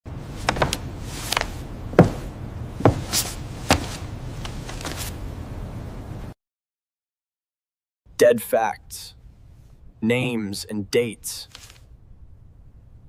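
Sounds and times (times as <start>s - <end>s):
low steady rumble: 0.1s - 6.3s
heavy knocks: 0.4s - 4.1s
light hissy taps: 0.4s - 5.1s.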